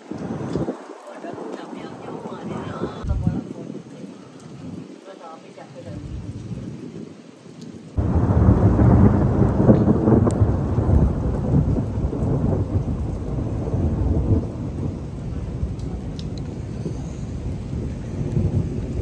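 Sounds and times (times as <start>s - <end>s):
thunder rumbling: 0.0s - 4.9s, 7.9s - 19.0s
heavy rain: 0.0s - 19.0s.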